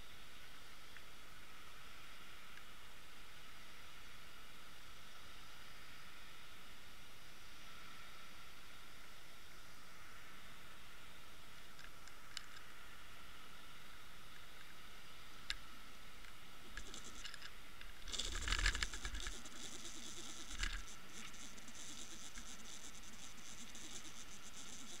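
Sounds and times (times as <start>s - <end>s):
crackling and scraping: 16.6s - 25.0s
sharp clicks: 16.7s - 25.0s.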